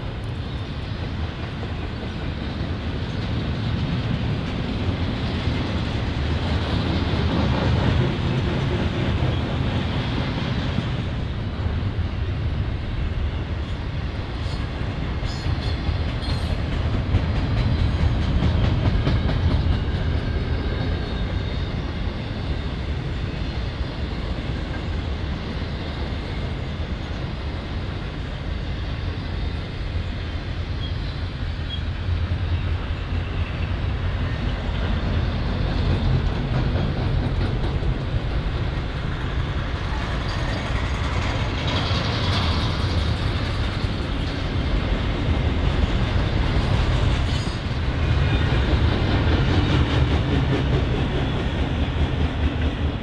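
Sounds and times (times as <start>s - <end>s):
freight train rumbling: 0.0s - 53.0s.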